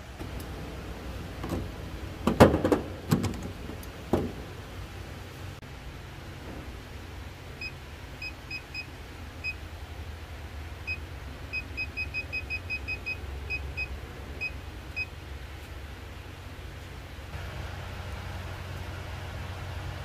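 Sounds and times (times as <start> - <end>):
battery tester high beeps: 10.9 - 15.1.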